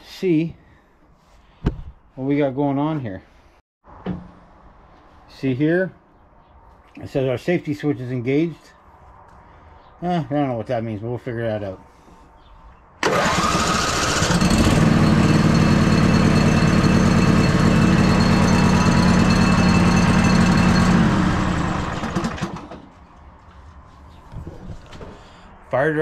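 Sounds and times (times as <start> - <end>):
lawn tractor engine starting and running: 13.0 - 23.0.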